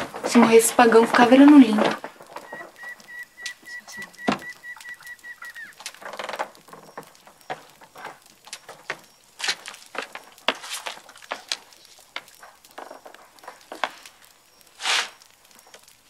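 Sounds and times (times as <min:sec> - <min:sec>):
small clicks and knocks: 0:00.0 - 0:16.0
high trilling animal call: 0:02.4 - 0:06.2.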